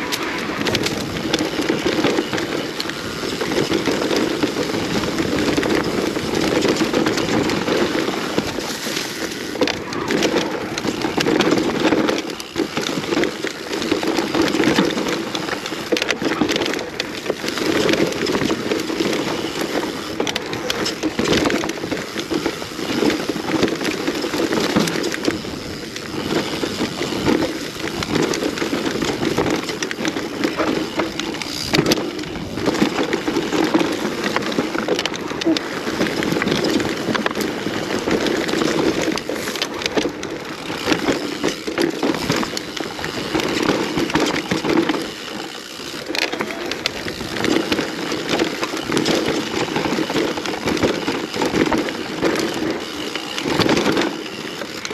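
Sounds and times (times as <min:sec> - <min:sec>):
bike knocking and clattering: 0:00.0 - 0:54.9
bike tyres rattling on dirt: 0:00.0 - 0:54.9.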